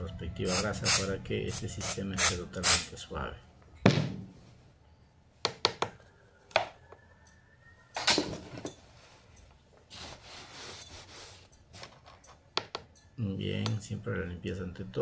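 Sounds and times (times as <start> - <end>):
cloth rag rustling: 8.9 - 12.0.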